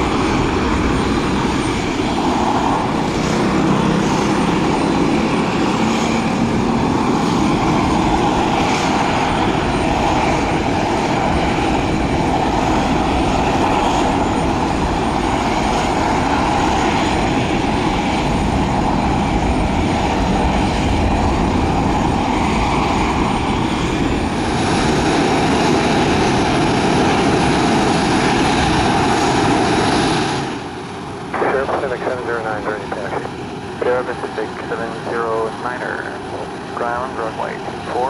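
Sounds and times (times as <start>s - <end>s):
jet engines whining at taxi: 0.0s - 38.0s.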